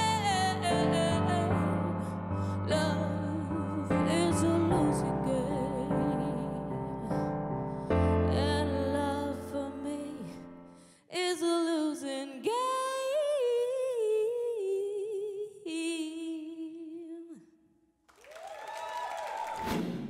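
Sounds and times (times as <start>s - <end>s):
woman singing into microphone: 0.0s - 7.3s, 8.2s - 10.4s, 11.1s - 17.4s.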